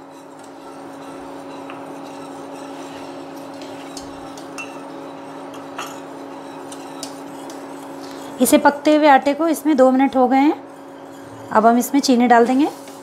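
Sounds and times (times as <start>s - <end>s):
whisk clinking against pot: 0.0s - 8.7s
cooktop hum: 0.0s - 13.0s
whisk stirring milk in a pot: 0.0s - 13.0s.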